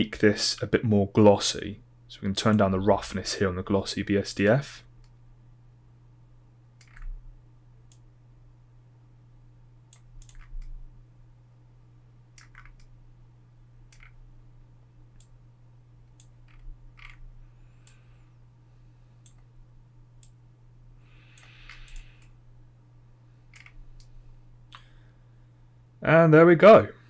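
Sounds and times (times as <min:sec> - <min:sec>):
low hum: 0:00.0 - 0:27.0
computer mouse clicking: 0:06.8 - 0:07.2, 0:09.9 - 0:10.8, 0:12.4 - 0:12.9, 0:13.9 - 0:14.2, 0:16.1 - 0:17.2, 0:19.2 - 0:19.5, 0:21.3 - 0:22.4, 0:23.5 - 0:24.2.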